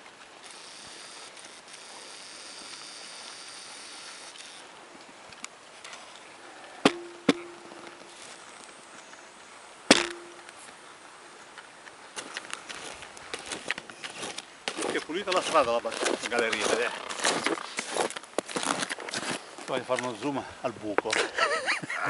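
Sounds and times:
faint hiss: 0.0s - 17.8s
sharp knocks with ringing tone: 6.8s - 7.9s, 9.9s - 10.5s.

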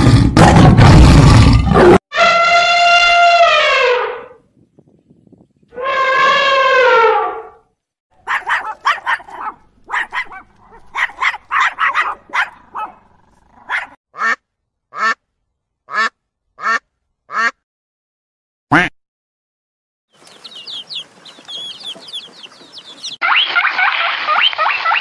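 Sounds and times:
elephant trumpeting: 5.8s - 7.5s
small dog barking: 8.2s - 13.0s, 13.6s - 14.0s
duck quacking: 14.2s - 15.2s, 15.9s - 17.6s, 18.7s - 18.9s.

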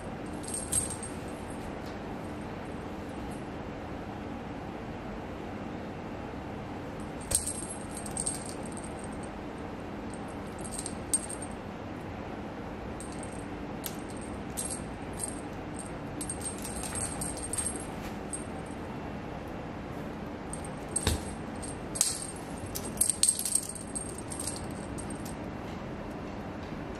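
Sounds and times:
small jingle bell tinkling: 0.3s - 1.5s, 7.2s - 9.3s, 10.2s - 11.6s, 13.0s - 18.8s, 20.5s - 25.4s.

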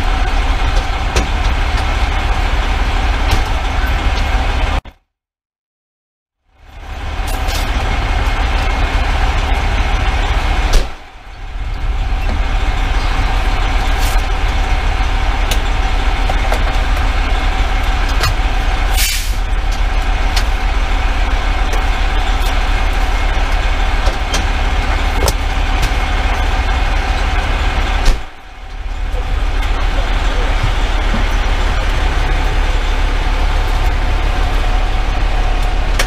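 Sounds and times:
diesel engine running: 0.0s - 4.8s, 6.5s - 36.0s
short hiss of air: 19.0s - 19.4s.

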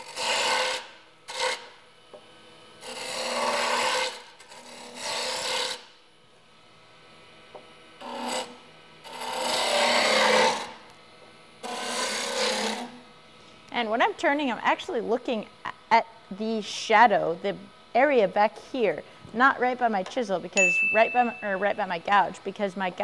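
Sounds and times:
lathe gouge cutting wood: 0.0s - 1.7s, 2.8s - 5.8s, 9.1s - 10.7s.

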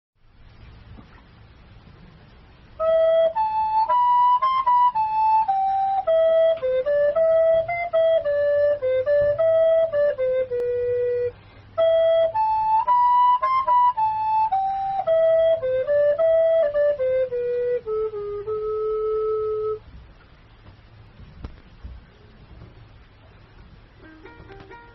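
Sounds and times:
flute-like slow melody: 2.7s - 19.9s, 24.0s - 24.9s.

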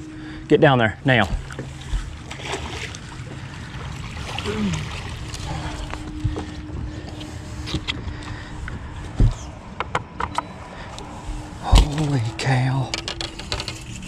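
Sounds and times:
faint steady hum: 0.0s - 14.0s
wind rumble on microphone: 3.0s - 14.0s.

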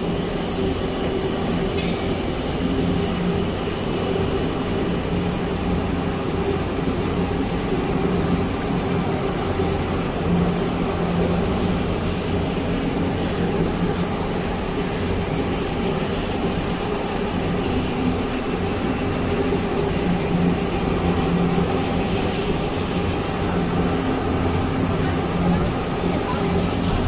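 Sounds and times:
factory machinery humming: 0.0s - 27.0s.

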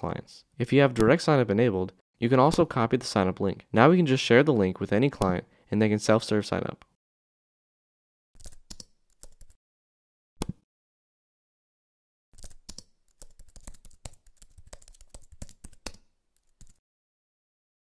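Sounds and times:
computer keyboard typing: 8.4s - 9.6s, 12.4s - 16.8s.

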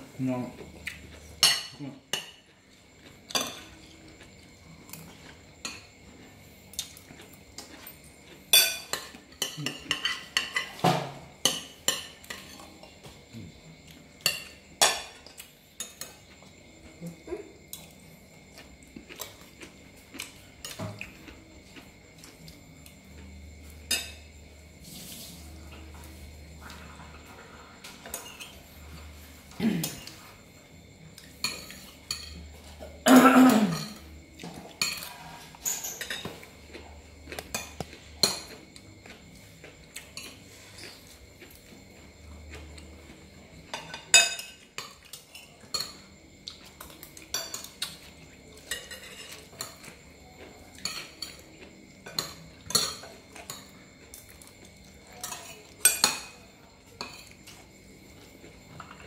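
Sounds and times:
spoons clinking on ceramic plates: 1.4s - 2.5s, 3.3s - 3.9s, 8.5s - 12.6s, 14.2s - 16.3s, 31.2s - 36.5s, 43.6s - 57.6s.

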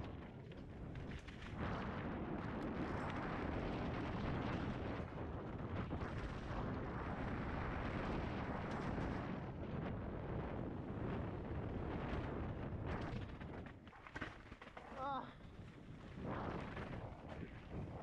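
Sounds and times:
wind rush on microphone: 0.0s - 18.0s
bike tyres on rough trail: 11.3s - 17.0s.

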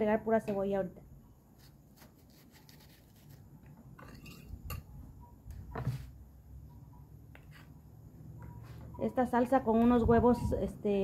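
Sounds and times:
knife cutting onion: 1.5s - 3.8s.

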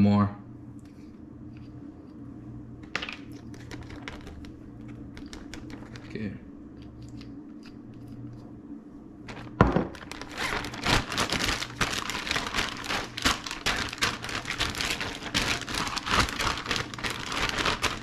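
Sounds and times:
plastic bag crinkling: 3.0s - 6.2s, 9.3s - 18.0s.

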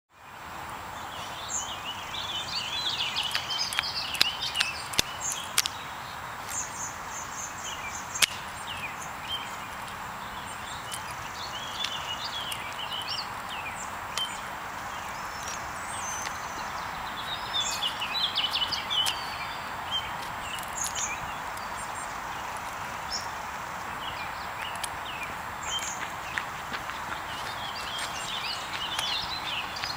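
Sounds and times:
steady outdoor hiss: 0.1s - 29.9s
birds chirping and singing: 1.0s - 29.9s
sharp clicks: 3.1s - 5.8s, 8.1s - 8.9s.

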